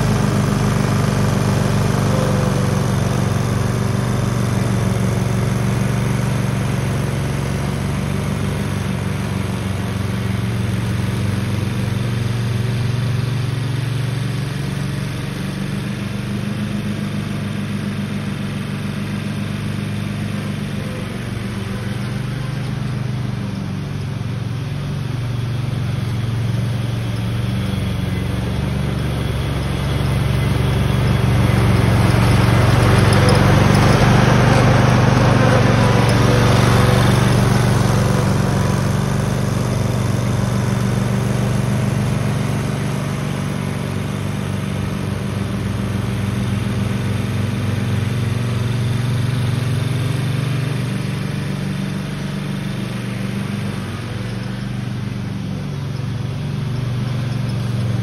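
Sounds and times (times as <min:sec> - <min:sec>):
mower engine driving by: 0:00.0 - 0:58.0.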